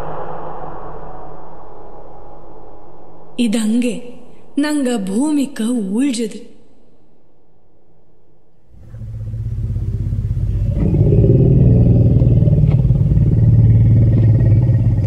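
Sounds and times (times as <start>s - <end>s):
elephant rumbling: 8.7s - 15.0s.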